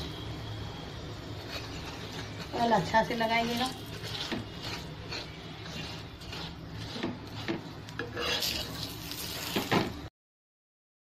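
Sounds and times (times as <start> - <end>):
metal spatula scraping on iron pan: 1.2 - 10.0.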